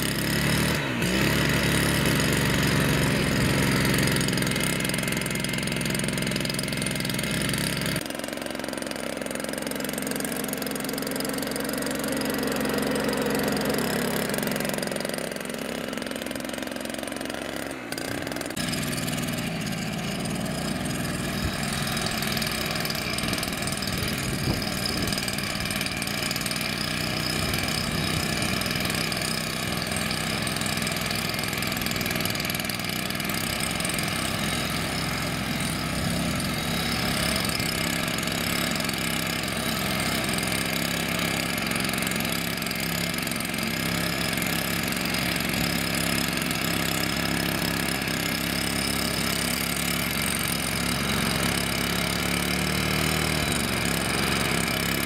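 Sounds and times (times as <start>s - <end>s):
small petrol engine running: 0.0s - 55.0s.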